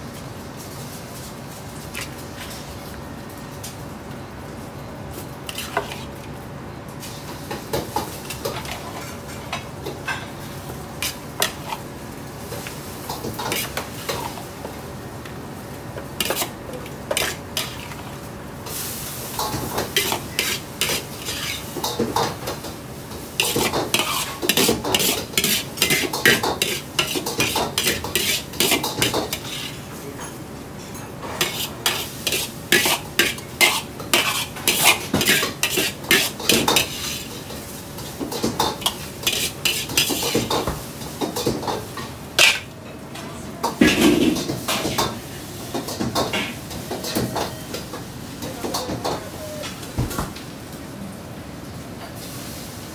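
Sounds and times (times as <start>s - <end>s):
metal ladle scraping wok: 13.4s - 14.4s, 16.2s - 18.2s, 19.8s - 21.9s, 23.3s - 29.8s, 31.4s - 37.5s, 38.8s - 40.6s, 42.4s - 42.7s.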